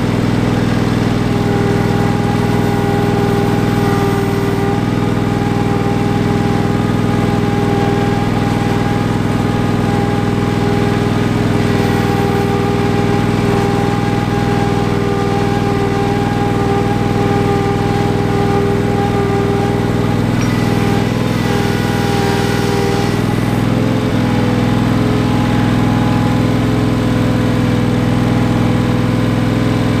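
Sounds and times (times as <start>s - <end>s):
garden tractor engine running: 0.0s - 30.0s.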